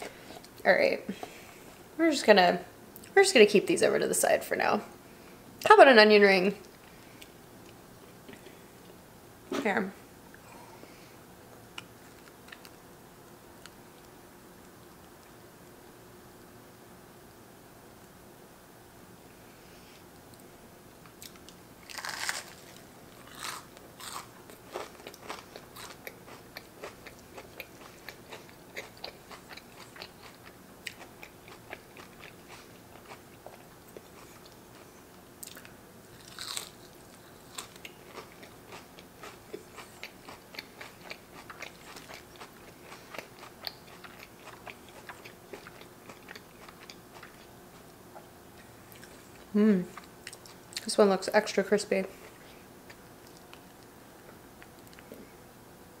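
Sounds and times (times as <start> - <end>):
crunchy chewing: 21.0 - 50.8
biting into onion rings: 21.2 - 34.6, 35.4 - 47.9.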